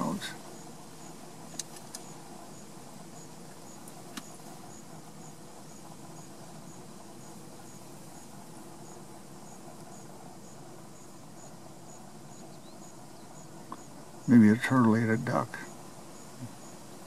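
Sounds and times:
insect chirping: 0.0 - 17.0.

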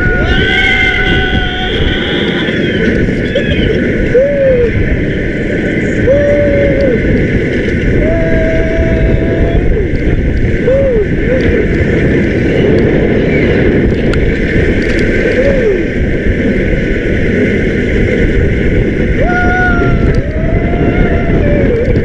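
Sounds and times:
wind noise on microphone: 0.0 - 22.0
person calling out: 4.1 - 4.7, 6.0 - 7.0.

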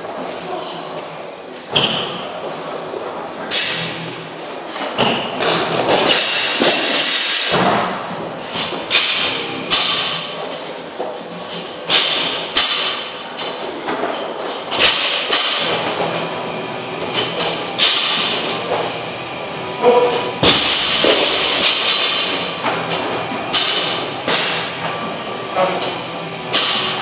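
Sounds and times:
weights landing on gym floor: 20.0 - 24.8.

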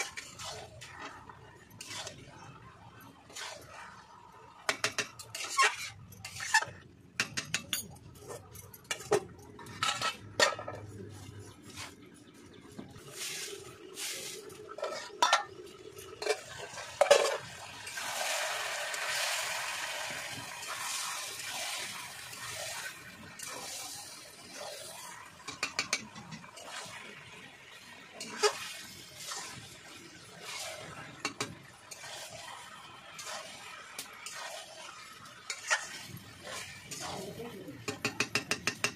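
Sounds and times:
metal spatula scraping a pan: 0.0 - 2.5, 3.3 - 10.8, 13.2 - 15.5, 16.2 - 17.5, 28.2 - 29.6, 30.2 - 38.9
chicken sizzling in a pan: 16.2 - 38.7.

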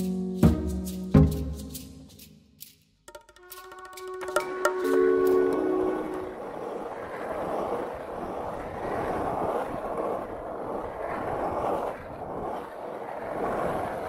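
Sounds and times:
wind on microphone: 4.4 - 14.0
skateboard wheels rolling on asphalt: 5.0 - 14.0.

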